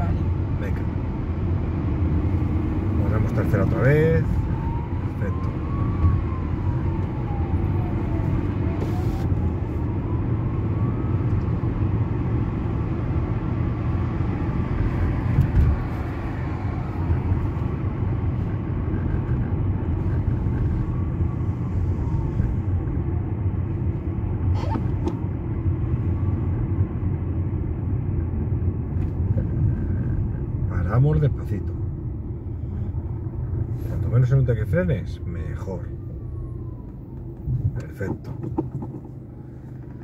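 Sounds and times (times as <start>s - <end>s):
car engine and tyre rumble: 0.0s - 40.0s.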